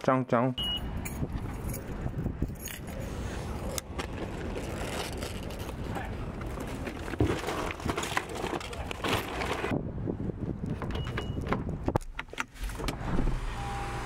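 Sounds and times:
street background: 0.0s - 14.0s
shopping bags rustling: 3.1s - 9.7s.

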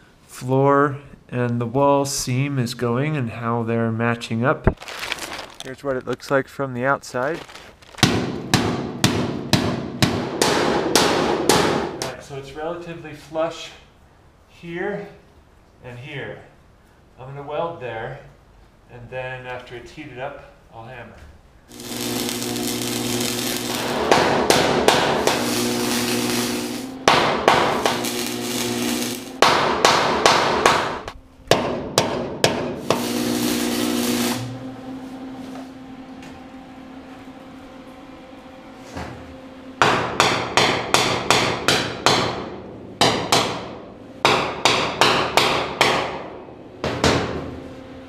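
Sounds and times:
welding arc crackling: 7.4s - 8.3s, 21.7s - 31.2s, 32.5s - 34.7s
low steady hum: 12.0s - 40.3s
hammer blows on steel: 21.8s - 34.6s.

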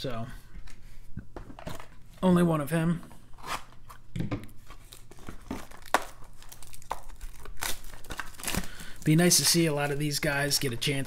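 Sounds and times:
cellophane crinkling and tearing: 4.6s - 11.0s.

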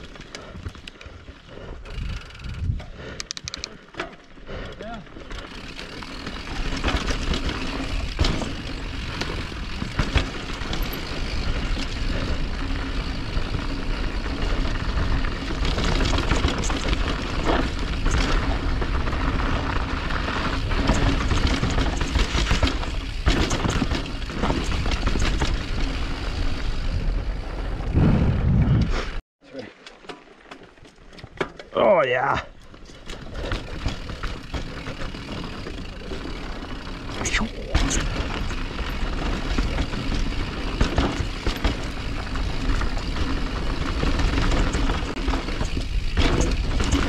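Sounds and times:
rushing wind on microphone: 1.9s - 3.0s, 26.6s - 29.2s.

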